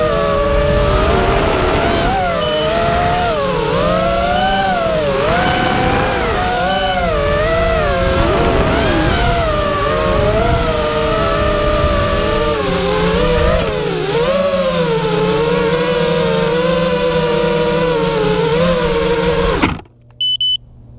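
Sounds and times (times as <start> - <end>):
drone motors whining: 0.0 - 20.4.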